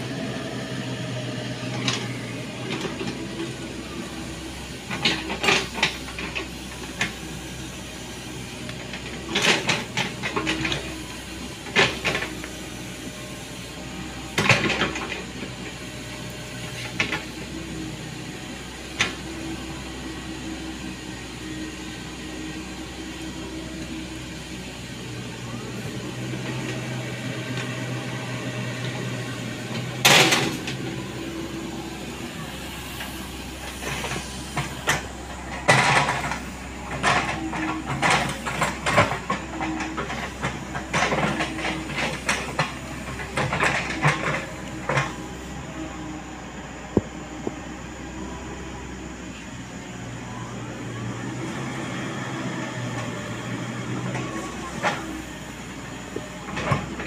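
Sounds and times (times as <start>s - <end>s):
excavator diesel engine running: 0.0s - 57.0s
excavator bucket digging soil: 25.4s - 45.9s.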